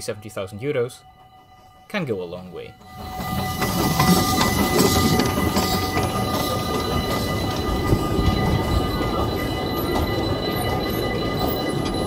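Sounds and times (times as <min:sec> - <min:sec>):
steam train rolling past: 0:00.0 - 0:12.0
wheels rumbling on rails: 0:02.7 - 0:12.0.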